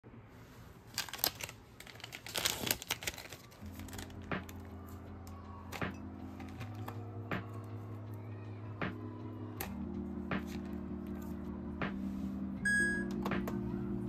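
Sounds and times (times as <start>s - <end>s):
paper crinkling: 0.9s - 5.0s
soft background music: 1.4s - 14.0s.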